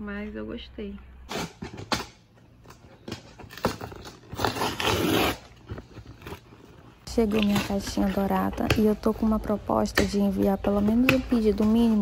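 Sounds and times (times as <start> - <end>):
packing tape and cardboard tearing: 1.3 - 8.3.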